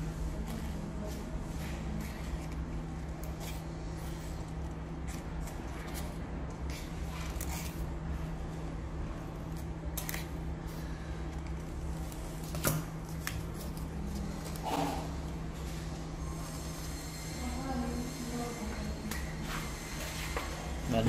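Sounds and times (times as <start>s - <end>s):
steady low hum: 0.0s - 21.0s
scissors snipping paper: 9.5s - 10.4s.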